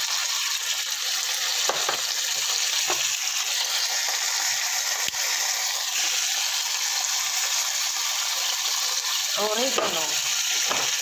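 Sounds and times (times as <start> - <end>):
chicken sizzling in hot oil: 0.0 - 11.0.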